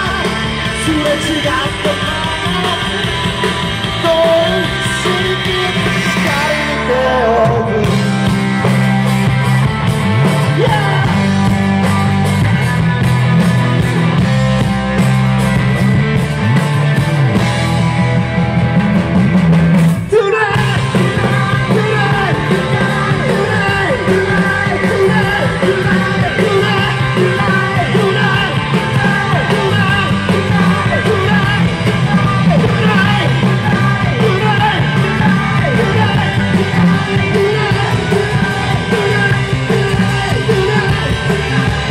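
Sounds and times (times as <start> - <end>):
man singing: 0.0 - 8.4, 10.4 - 11.4, 20.0 - 41.9
bass guitar: 0.0 - 41.9
drum kit: 0.0 - 41.9
electric guitars: 0.0 - 41.9.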